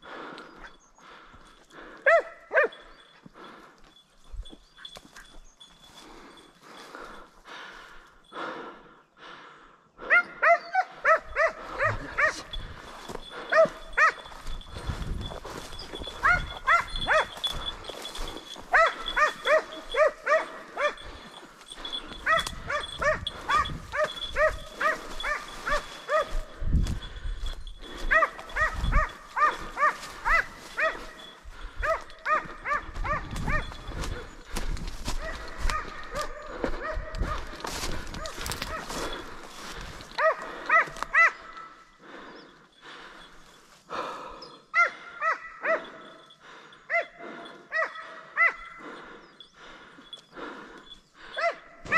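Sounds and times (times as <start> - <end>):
hound baying in high yelps: 2.0 - 3.0, 10.0 - 14.6, 15.6 - 26.6, 27.8 - 34.4, 35.1 - 41.8, 44.7 - 46.3, 46.9 - 48.8, 51.3 - 51.9.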